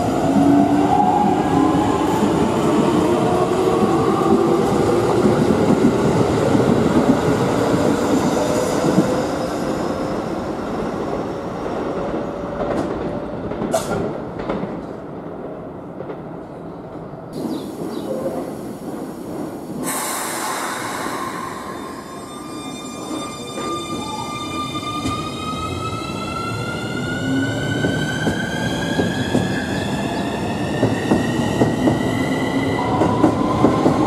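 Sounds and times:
hissing air burst: 19.8s - 21.9s.

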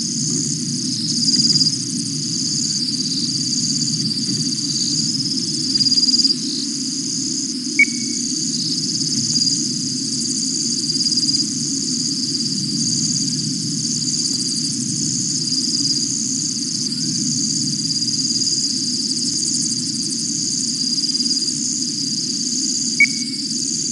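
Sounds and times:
night insects trilling: 0.0s - 23.9s
steady low hum: 7.8s - 8.5s.

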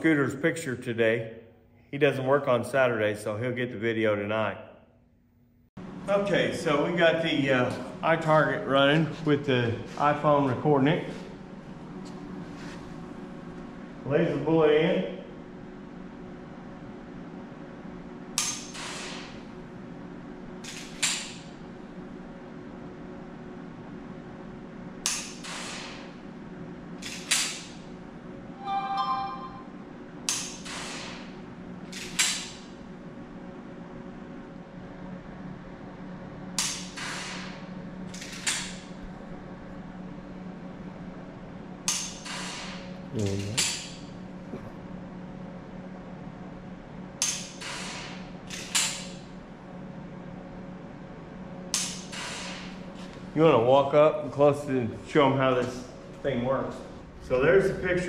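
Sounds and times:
low hum: 28.0s - 30.3s
short pitched tone: 28.6s - 29.8s.

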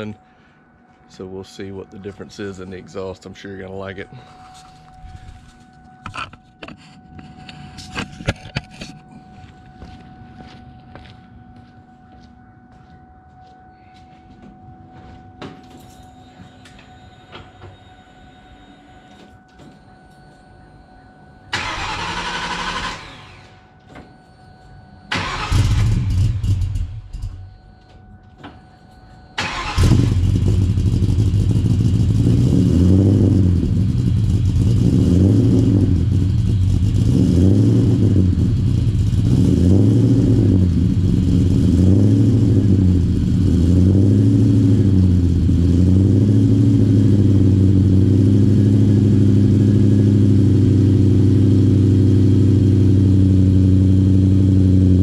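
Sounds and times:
car engine idling: 29.4s - 55.0s.

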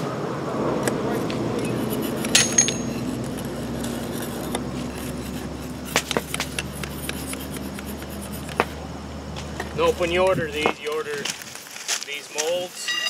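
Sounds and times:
steady low hum: 0.0s - 11.8s
sharp clicks and knocks: 0.8s - 5.2s, 5.8s - 9.8s
steel bar scraping sand mold: 1.2s - 8.7s.

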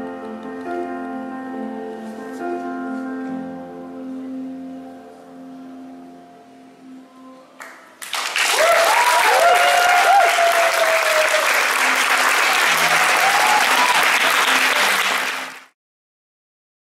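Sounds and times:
faint music: 0.0s - 8.4s
audience applauding: 7.6s - 15.8s
cheering and whoops: 8.4s - 15.2s.

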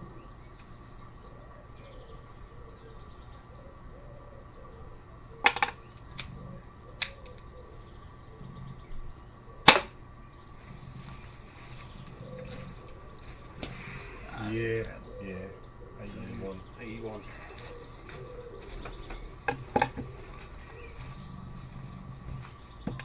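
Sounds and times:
air pistol shot: 9.6s - 10.0s.

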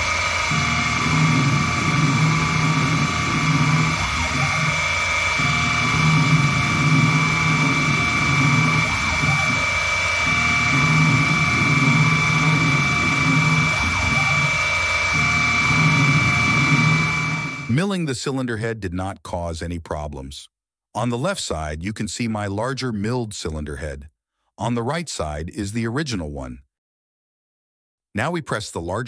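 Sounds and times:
metal cutting sound: 0.0s - 17.7s
milling spindle high whine: 0.0s - 17.8s.

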